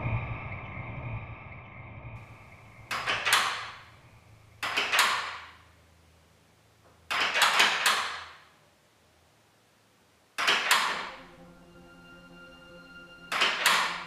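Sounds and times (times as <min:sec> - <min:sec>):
door rattling in its frame: 0:02.8 - 0:04.0, 0:04.6 - 0:05.7, 0:07.1 - 0:08.5, 0:10.4 - 0:11.2, 0:13.3 - 0:14.0.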